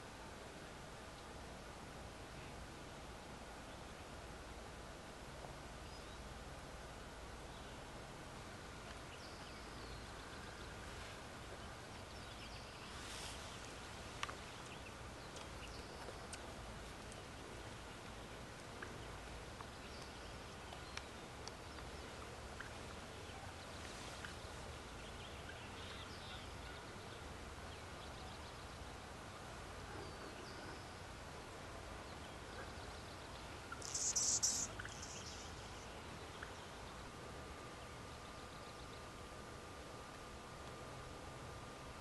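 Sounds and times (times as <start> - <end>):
steady hiss: 0.0 - 42.0
faint bird chirps: 29.9 - 31.1, 32.0 - 39.1
high-pitched rasping call: 33.8 - 35.2.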